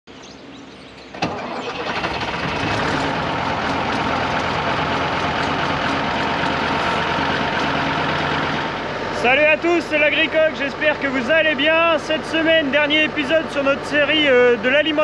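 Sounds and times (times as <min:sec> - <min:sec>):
tractor diesel engine running: 0:01.0 - 0:15.0.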